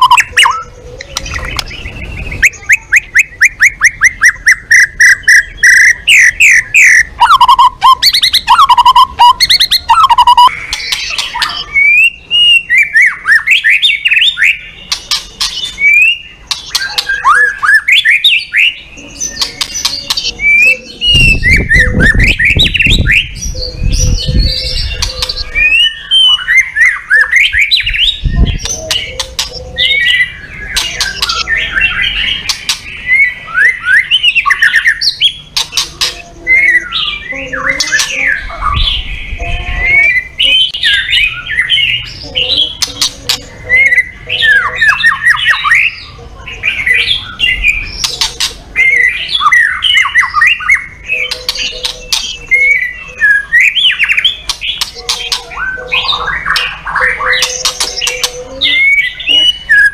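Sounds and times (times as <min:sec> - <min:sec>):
bird singing whistles: 0:00.0 - 0:35.4, 0:48.8 - 0:59.9.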